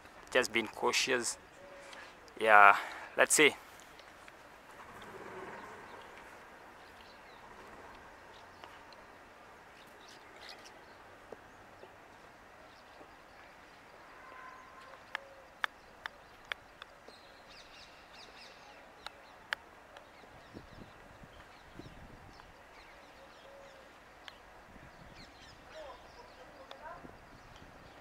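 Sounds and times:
faint bird calls: 0:12.7 - 0:28.0.

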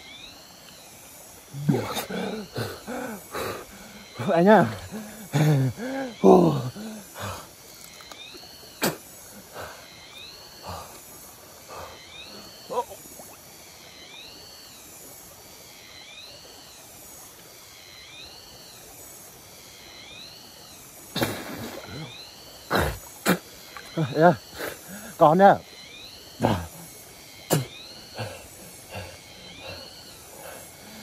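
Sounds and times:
stream water splashing: 0:01.3 - 0:13.9, 0:21.0 - 0:25.0.

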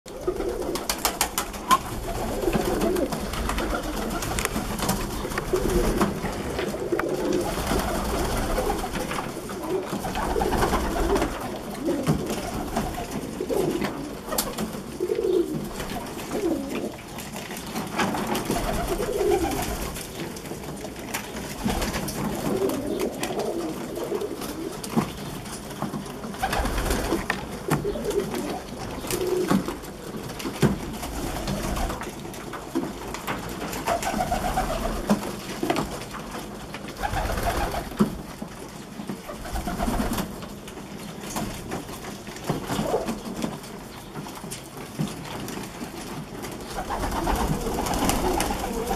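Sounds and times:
pigeons cooing: 0:00.1 - 0:20.5, 0:21.4 - 0:25.3, 0:26.3 - 0:32.1, 0:33.8 - 0:35.8, 0:42.6 - 0:43.9, 0:46.4 - 0:48.9.

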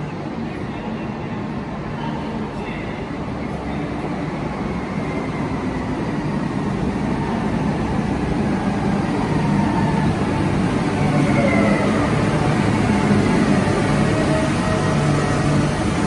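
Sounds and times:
electric train rumble: 0:00.0 - 0:16.0
falling train whine: 0:04.4 - 0:16.0.

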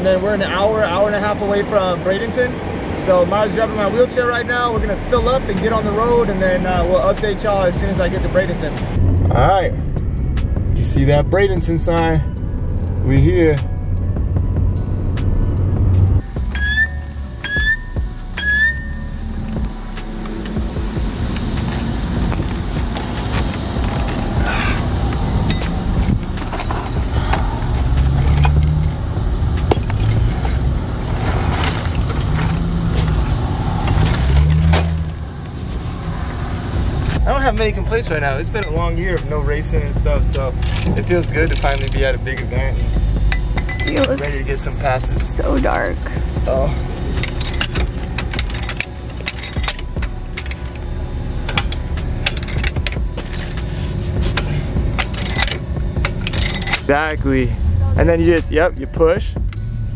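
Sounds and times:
steady low rumble: 0:04.3 - 0:59.9
low hum: 0:04.8 - 0:59.9
metal clicks of wheel hardware: 0:17.4 - 0:33.2, 0:40.2 - 0:44.4, 0:46.0 - 0:57.9, 0:58.8 - 0:59.9.

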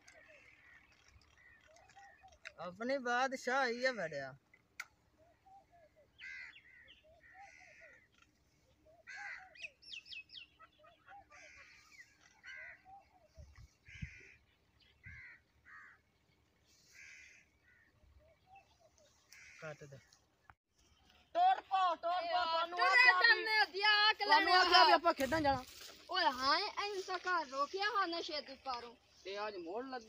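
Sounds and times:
high bird chirps: 0:05.1 - 0:16.4
harsh bird calls: 0:05.2 - 0:20.3.

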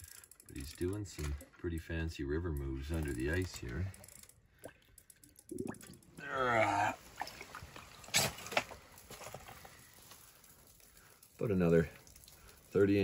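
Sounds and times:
sharp water splashes: 0:07.0 - 0:09.0.

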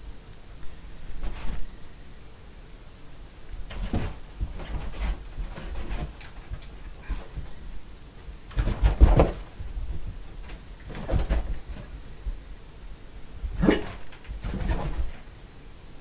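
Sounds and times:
puppy scrambling on carpet: 0:03.6 - 0:07.7, 0:08.5 - 0:12.0, 0:13.8 - 0:15.3.

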